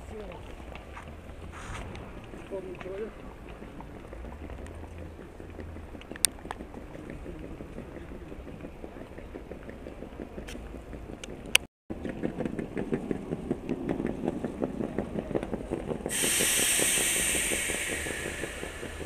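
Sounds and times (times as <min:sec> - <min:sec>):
low rumble: 0:14.3 - 0:19.0
loud hiss: 0:16.1 - 0:19.0.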